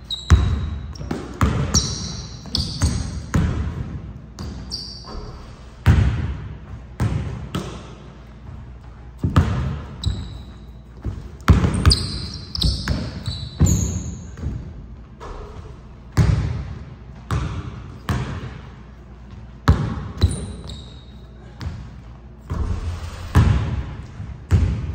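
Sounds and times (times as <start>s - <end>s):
sneaker squeaks on wooden floor: 0.0s - 3.4s, 4.4s - 5.6s, 9.8s - 14.4s, 20.2s - 21.6s
basketball bouncing on hardwood floor: 0.3s - 4.6s, 5.8s - 7.8s, 9.2s - 14.7s, 16.1s - 18.6s, 19.3s - 20.8s, 23.4s - 24.9s.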